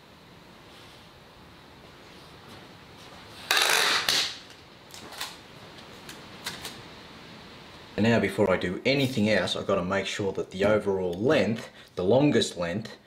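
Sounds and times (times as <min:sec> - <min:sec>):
adhesive tape ripping off roll: 0:03.4 - 0:05.4.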